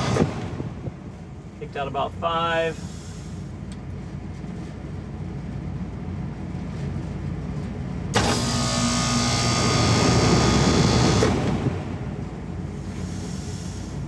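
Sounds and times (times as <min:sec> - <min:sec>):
condensing unit running: 0:02.8 - 0:14.0.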